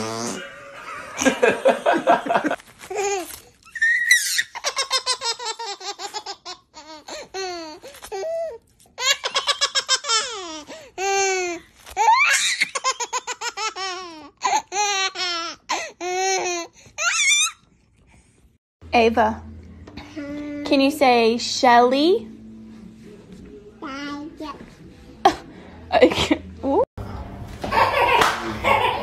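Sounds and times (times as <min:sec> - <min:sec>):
baby laughing: 0:02.3 - 0:17.6, 0:27.6 - 0:29.0.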